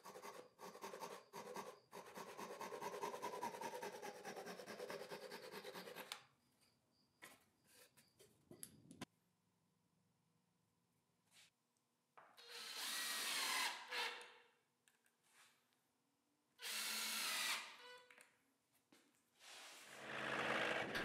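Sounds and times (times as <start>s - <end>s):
hand saw cutting wood: 0.0s - 6.1s.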